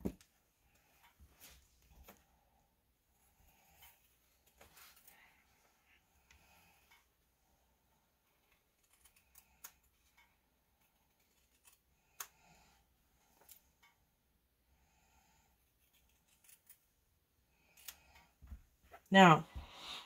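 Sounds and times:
scissors snipping cloth: 0:08.4 - 0:12.4.

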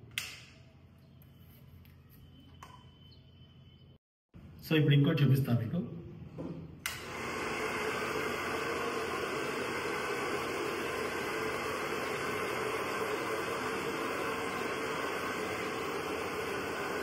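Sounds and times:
hair dryer blowing air: 0:06.8 - 0:17.0
hair dryer switch: 0:06.8 - 0:17.0.

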